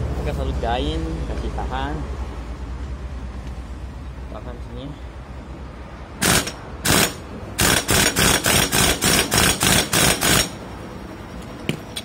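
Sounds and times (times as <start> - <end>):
impact wrench bursts: 6.2 - 10.6.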